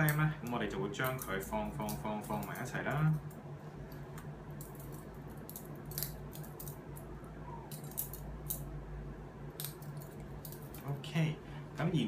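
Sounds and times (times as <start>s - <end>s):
steady low hum: 0.0s - 12.0s
metal instruments clinking: 7.7s - 8.7s.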